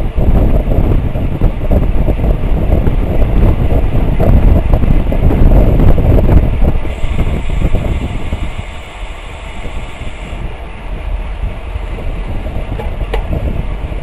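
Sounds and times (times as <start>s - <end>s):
bicycle tyres rumbling on pavement: 0.0s - 14.0s
wind rushing over microphone: 0.0s - 14.0s.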